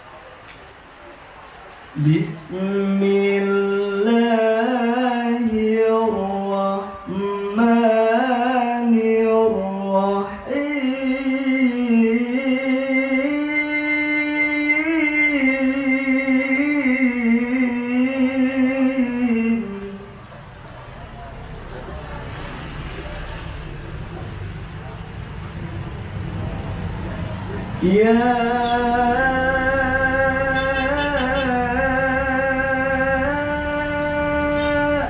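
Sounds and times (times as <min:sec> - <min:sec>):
man reciting melodically: 0:02.0 - 0:20.3, 0:27.4 - 0:35.0.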